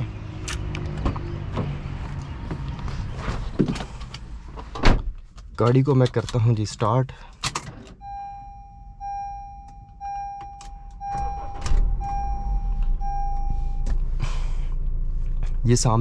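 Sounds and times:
car engine starting and idling: 0:00.0 - 0:16.0
dashboard warning chime beeping: 0:08.0 - 0:14.0.

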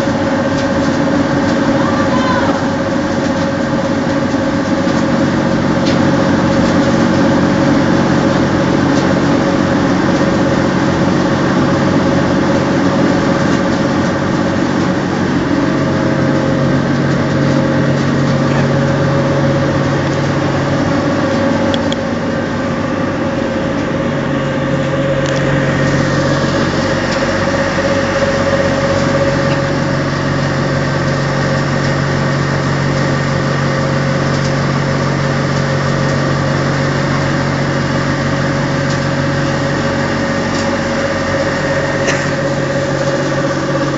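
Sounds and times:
machinery humming and droning: 0:00.0 - 0:43.9.

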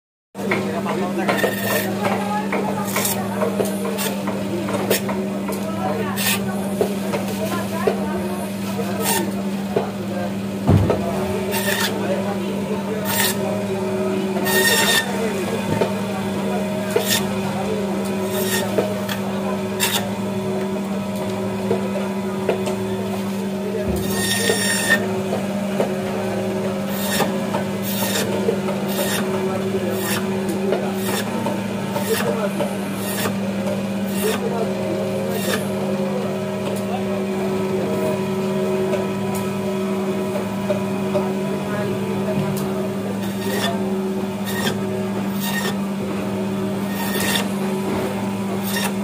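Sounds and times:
band saw humming: 0:00.4 - 0:49.0
saw blade rasping through fish: 0:06.2 - 0:06.4, 0:11.5 - 0:12.0, 0:13.0 - 0:13.4, 0:14.4 - 0:15.1, 0:16.9 - 0:17.3, 0:19.8 - 0:20.1, 0:26.9 - 0:28.3, 0:28.9 - 0:29.3, 0:30.0 - 0:30.3, 0:31.0 - 0:31.3, 0:32.0 - 0:32.4, 0:33.0 - 0:33.4, 0:34.1 - 0:34.4, 0:35.3 - 0:35.6, 0:43.2 - 0:43.8, 0:44.4 - 0:45.8, 0:46.9 - 0:47.5, 0:48.6 - 0:49.0.

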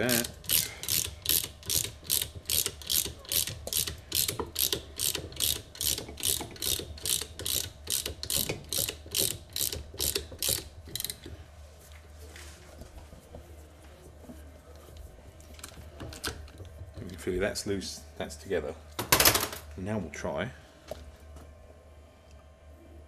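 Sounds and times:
ratchet wrench clicking: 0:00.0 - 0:11.3.

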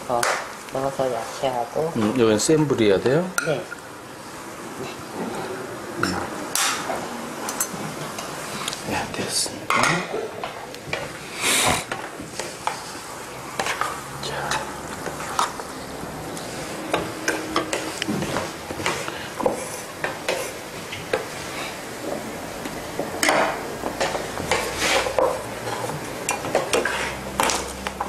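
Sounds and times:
food sizzling: 0:00.0 - 0:28.0
utensils scraping frying pan: 0:11.5 - 0:21.8, 0:23.2 - 0:27.8.

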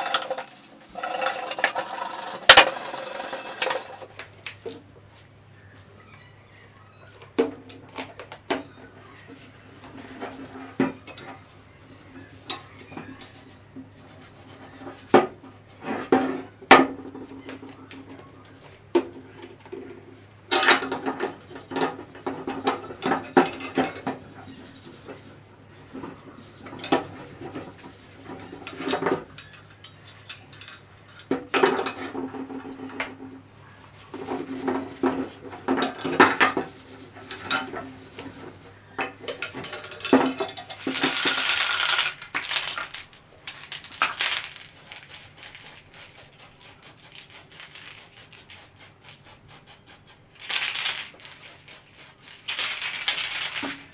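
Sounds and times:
cloth rubbing on metal: 0:00.0 - 0:04.1
metal pipe clinking and knocking: 0:00.0 - 0:04.1.

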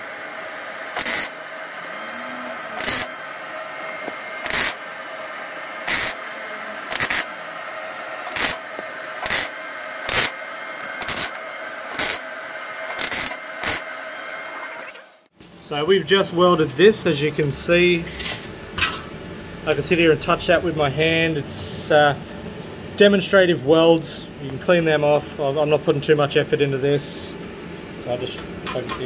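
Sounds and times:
welder hum: 0:00.0 - 0:15.3
welding arc bursts: 0:00.0 - 0:15.3.

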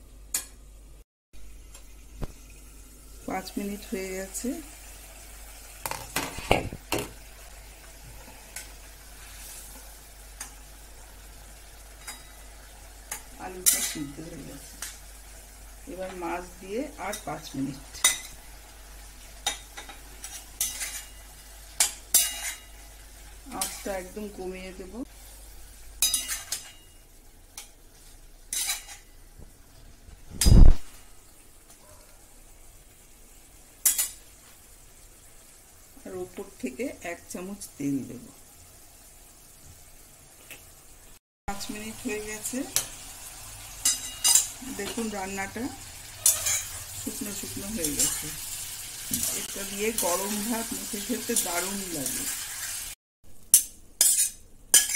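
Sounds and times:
curry sizzling: 0:01.4 - 0:54.9
metal spatula stirring in a pan: 0:11.9 - 0:15.0, 0:19.3 - 0:24.1, 0:26.0 - 0:29.2, 0:33.8 - 0:34.3, 0:42.7 - 0:45.2, 0:46.1 - 0:50.4, 0:53.5 - 0:54.9
metal spatula scraping a pot: 0:19.4 - 0:21.2, 0:27.6 - 0:29.1, 0:46.1 - 0:47.0, 0:53.5 - 0:54.9.

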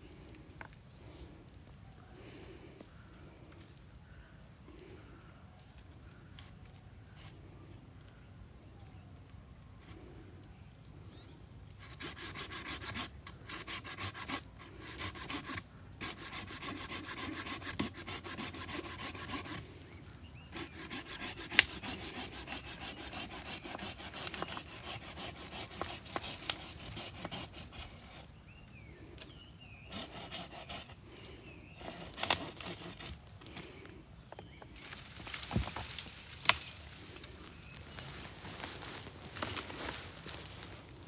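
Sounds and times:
hand saw cutting through roots: 0:11.8 - 0:19.7, 0:20.5 - 0:28.3, 0:29.9 - 0:31.0, 0:31.7 - 0:33.2.

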